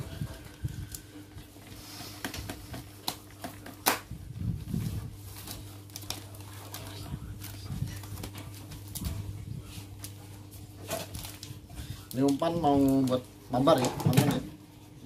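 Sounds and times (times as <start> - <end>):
plastic packet crinkling: 5.3 - 9.1, 10.9 - 13.9.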